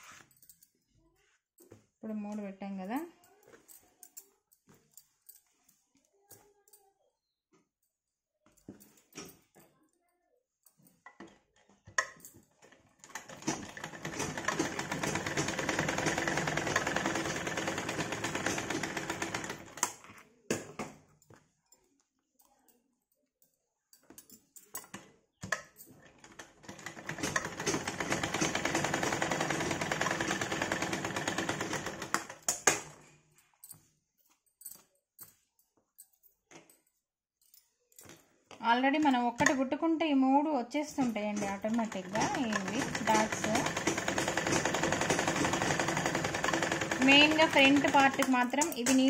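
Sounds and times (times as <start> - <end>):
sewing machine stitching: 12.6 - 20.0, 26.0 - 32.5, 40.9 - 49.0.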